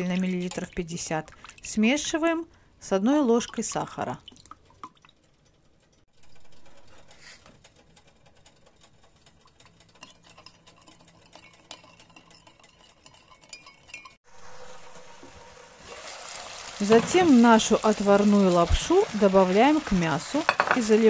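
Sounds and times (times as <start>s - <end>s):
teaspoon clinking against glass: 10.8s - 14.2s.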